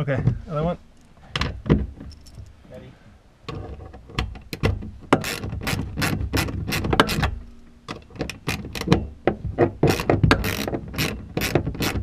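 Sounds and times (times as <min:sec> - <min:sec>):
hand ratchet clicking: 0:04.5 - 0:07.3, 0:09.8 - 0:12.0.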